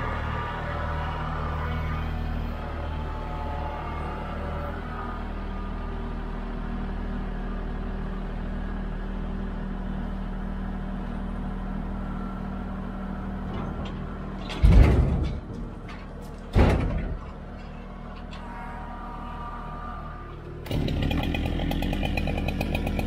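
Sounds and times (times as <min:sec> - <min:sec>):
tractor diesel engine running: 0:00.0 - 0:23.0
log thudding into trailer: 0:13.4 - 0:17.6.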